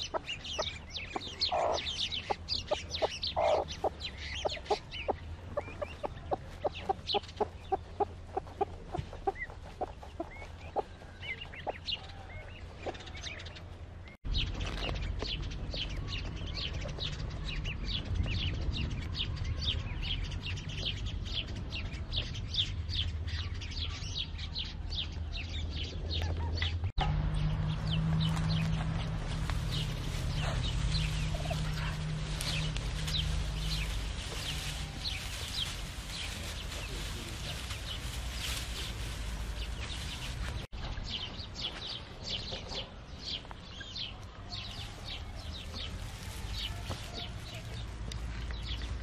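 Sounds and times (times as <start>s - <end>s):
hen clucking: 0.0s - 13.4s, 29.7s - 40.6s
chicks peeping: 0.0s - 13.7s, 14.4s - 49.0s.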